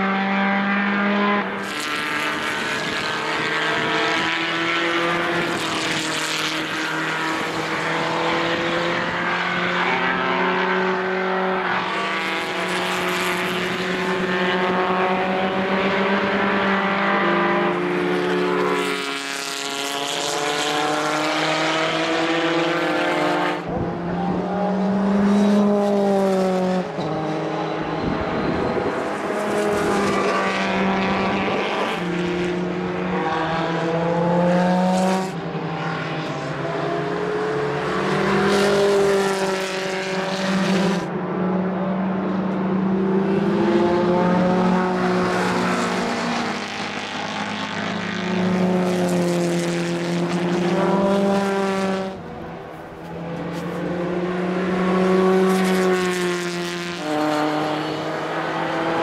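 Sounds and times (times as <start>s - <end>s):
racing car engines: 0.0s - 59.0s
wind buffeting microphone: 27.9s - 31.9s.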